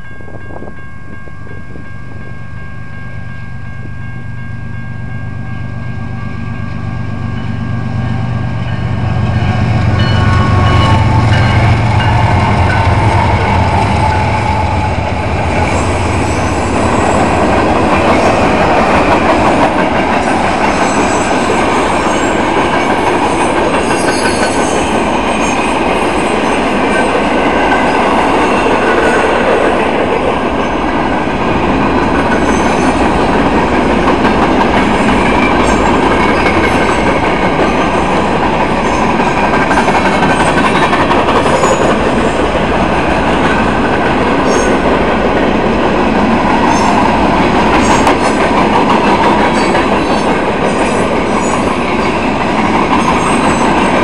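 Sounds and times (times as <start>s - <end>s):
train cars rumbling on rails: 0.0s - 54.0s.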